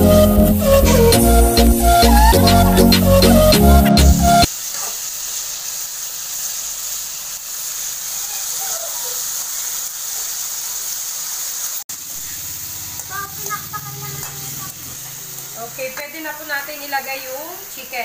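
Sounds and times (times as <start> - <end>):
vegetables sizzling in oil: 0.0 - 3.7, 4.3 - 18.0
background music: 0.0 - 4.5.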